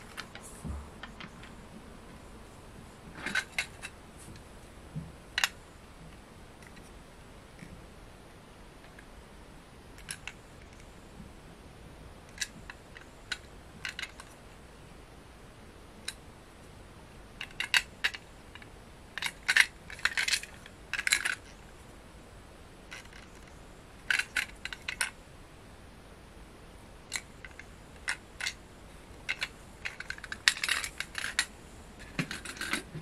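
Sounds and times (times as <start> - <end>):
plastic toy train clicks and rattles: 3.1 - 4.0, 5.4 - 5.6, 6.6 - 6.9, 10.0 - 10.9, 12.3 - 14.4, 17.4 - 21.6, 22.9 - 25.2, 27.1 - 33.0.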